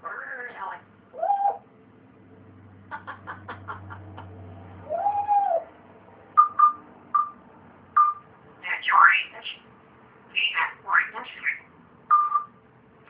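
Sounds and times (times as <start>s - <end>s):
parrot calling: 0.0s - 1.7s, 4.8s - 5.7s, 8.0s - 9.6s, 10.3s - 12.4s.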